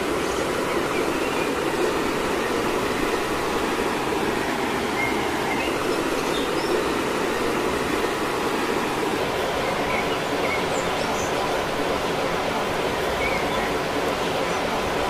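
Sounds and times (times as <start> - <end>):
flowing water rushing: 0.0 - 15.0.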